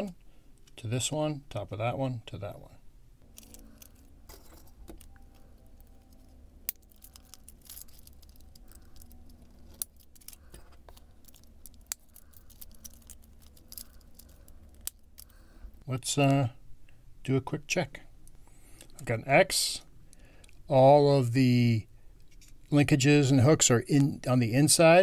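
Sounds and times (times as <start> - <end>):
plastic robot kit clicking and rattling: 6.7 - 15.3.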